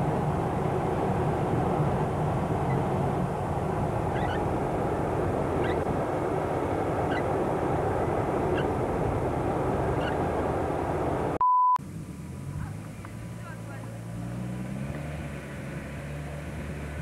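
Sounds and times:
off-road vehicle engine running: 0:00.0 - 0:17.0
censor bleep: 0:11.4 - 0:11.8.

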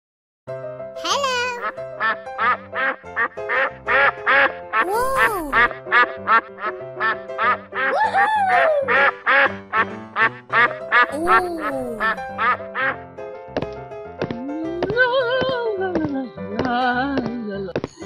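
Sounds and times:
cheerful background music: 0:00.5 - 0:18.0
cartoon duck quacking: 0:04.8 - 0:05.7, 0:10.6 - 0:12.6.

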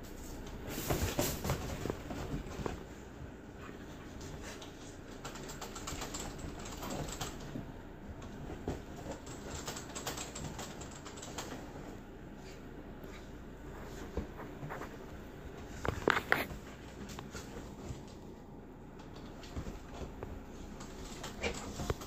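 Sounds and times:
dogs scuffling: 0:00.2 - 0:18.3.

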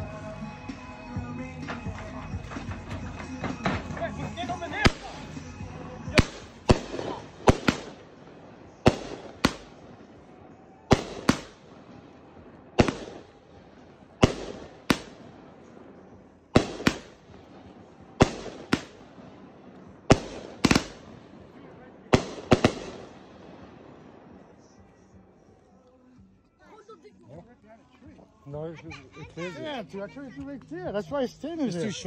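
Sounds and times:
firework cake sharp bangs: 0:01.6 - 0:24.6.

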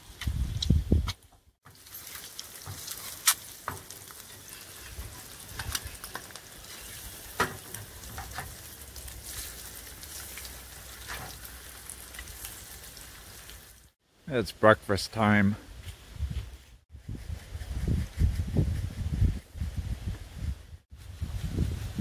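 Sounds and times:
eggs sizzling in a frying pan: 0:01.6 - 0:14.0
spatula scraping a pan: 0:01.8 - 0:11.5.

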